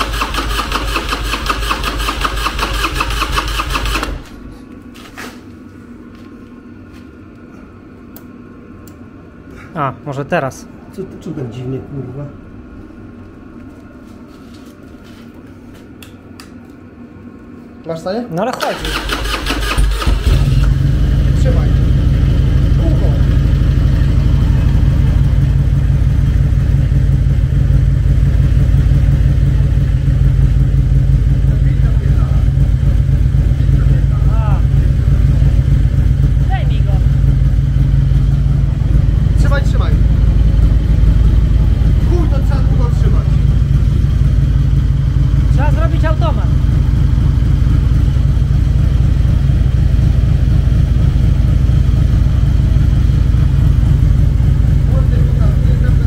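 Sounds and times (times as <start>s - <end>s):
motorcycle engine idling: 0.0s - 4.5s, 18.8s - 56.0s.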